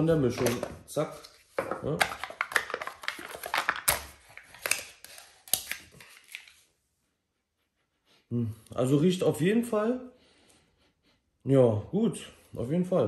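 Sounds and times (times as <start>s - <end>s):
packaging crinkling and rustling: 0.3s - 6.7s.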